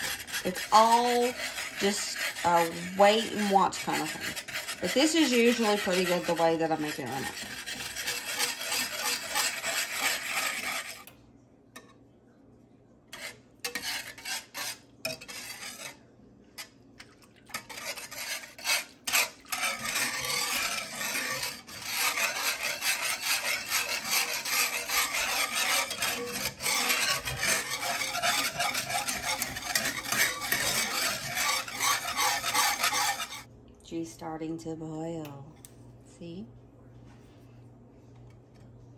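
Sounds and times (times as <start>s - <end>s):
whisk scraping metal skillet: 0.0s - 11.1s, 13.1s - 16.0s, 17.5s - 33.5s.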